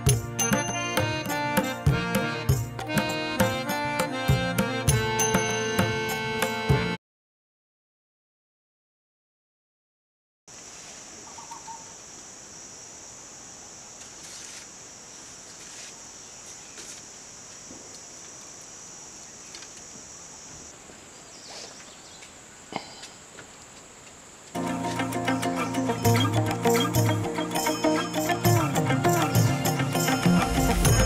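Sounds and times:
insects chirring: 10.5 - 31.0.

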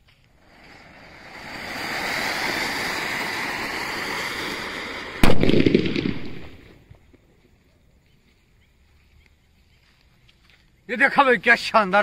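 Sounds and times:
firework fountain hissing: 0.0 - 6.9
firework crackling: 0.0 - 7.1
loud firework bang: 0.5 - 6.8.

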